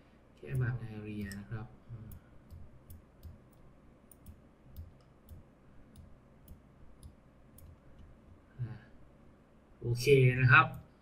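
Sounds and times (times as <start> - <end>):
computer mouse clicks: 0.4 - 8.4.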